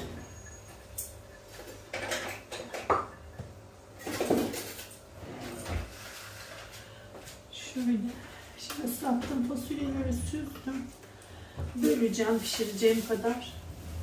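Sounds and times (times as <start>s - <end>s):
kitchen utensils and dishes clattering: 0.0s - 6.8s.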